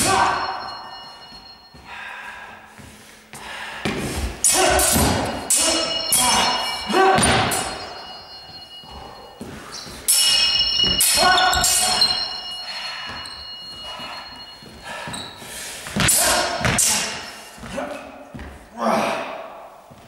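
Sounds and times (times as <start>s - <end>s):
steel swords clashing and ringing: 0.0s - 1.6s, 4.4s - 17.4s.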